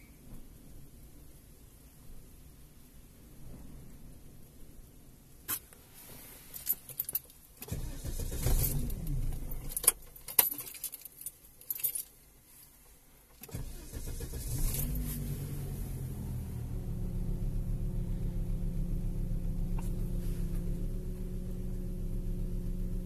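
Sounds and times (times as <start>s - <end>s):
keys jingling: 6.6s - 7.4s, 8.6s - 12.2s
car engine starting and idling: 7.6s - 10.6s, 13.4s - 23.0s.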